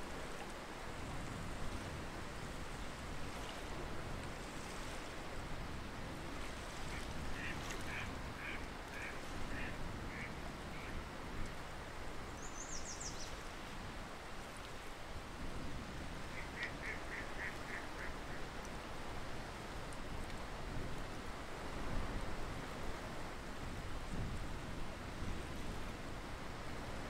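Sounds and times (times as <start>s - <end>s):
waterfowl calling: 6.9s - 10.9s, 16.4s - 18.4s.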